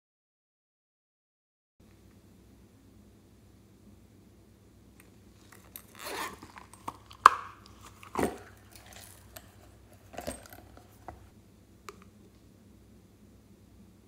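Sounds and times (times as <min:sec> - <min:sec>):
rustling scrapes of pencil case: 0:05.3 - 0:11.3.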